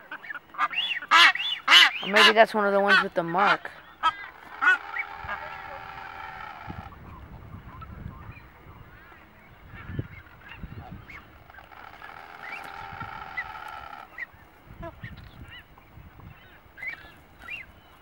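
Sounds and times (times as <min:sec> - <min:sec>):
seabirds honking calls: 0:00.0 - 0:07.0, 0:07.8 - 0:17.7
short rising bird notes: 0:11.0 - 0:14.4.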